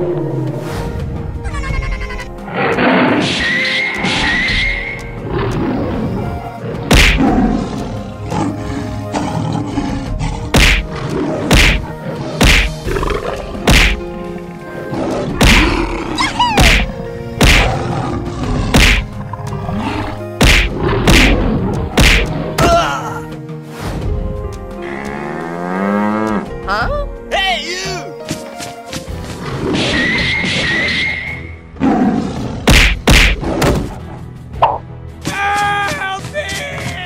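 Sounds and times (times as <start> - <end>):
dramatic background music: 0.0 - 37.0
fight thuds and whacks: 6.9 - 7.2, 10.5 - 10.9, 11.5 - 12.8, 13.7 - 14.0, 15.4 - 15.7, 16.6 - 17.7, 18.7 - 19.1, 20.4 - 21.4, 22.0 - 22.3, 32.6 - 33.9.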